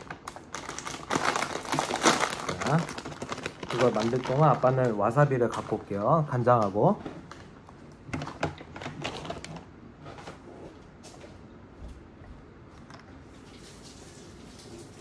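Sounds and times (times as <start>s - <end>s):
snack packaging rustling: 0.0s - 10.4s.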